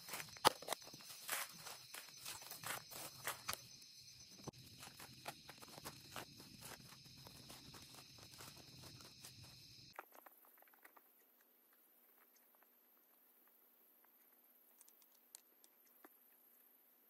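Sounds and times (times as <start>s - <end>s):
hoe chopping and scraping soil: 0.0s - 3.8s, 4.4s - 10.1s.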